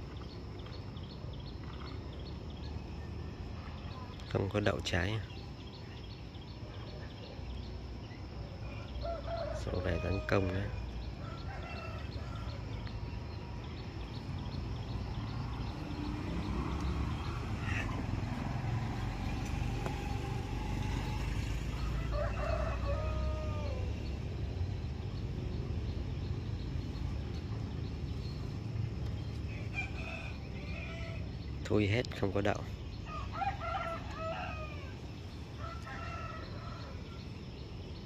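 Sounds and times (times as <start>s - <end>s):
rooster crowing: 8.6s - 12.9s, 20.6s - 24.1s, 29.5s - 31.3s, 33.0s - 37.4s.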